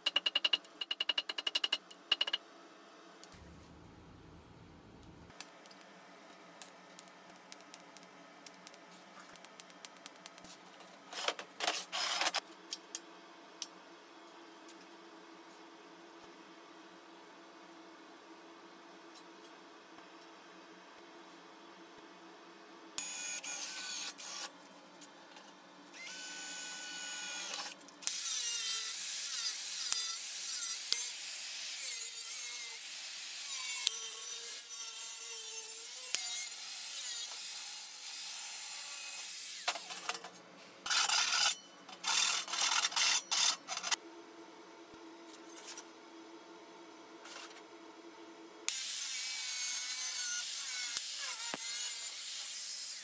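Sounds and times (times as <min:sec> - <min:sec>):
power tool working on metal: 0:26.0 - 0:40.0, 0:48.7 - 0:53.0.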